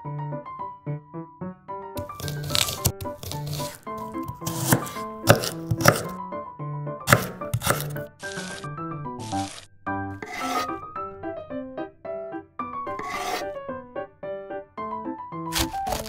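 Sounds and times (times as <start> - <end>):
light background music: 0.0 - 16.0
knife chopping onion on board: 2.0 - 6.2, 7.1 - 8.6, 10.2 - 10.7, 12.9 - 13.4, 15.5 - 16.0.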